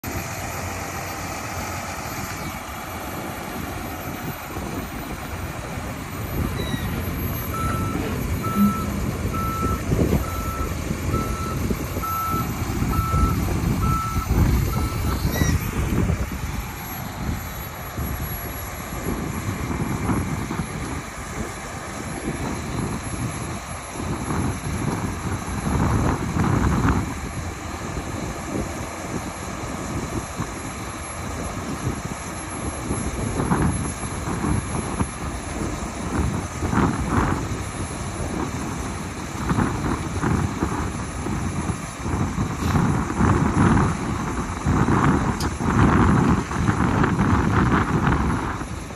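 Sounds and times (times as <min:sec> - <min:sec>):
diesel engine running: 0:00.0 - 0:48.9
reversing alarm beeps: 0:06.3 - 0:15.7.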